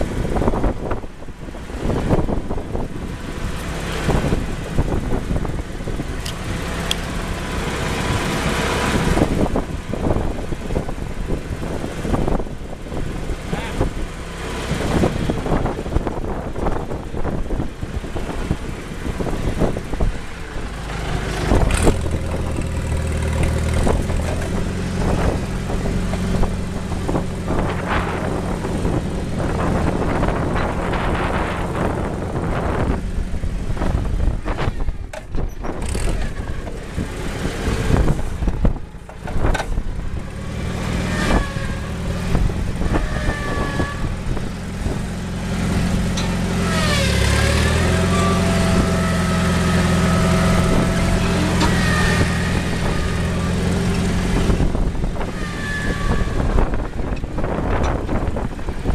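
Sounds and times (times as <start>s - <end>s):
forklift engine running: 0.0s - 58.9s
high squealing whines: 40.2s - 44.8s, 46.2s - 58.3s.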